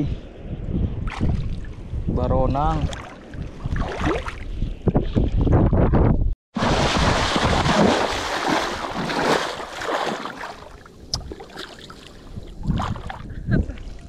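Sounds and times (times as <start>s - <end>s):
wind on microphone: 0.0s - 9.4s, 10.4s - 14.0s
sea water rushing: 6.6s - 13.1s.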